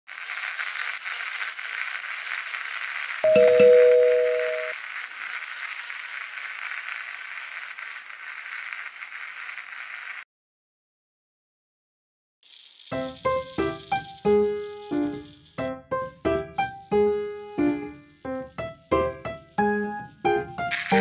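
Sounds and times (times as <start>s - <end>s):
steady hiss: 0.1s - 10.2s, 12.4s - 19.5s, 20.7s - 21.0s
loud two-note chime: 3.3s - 4.7s.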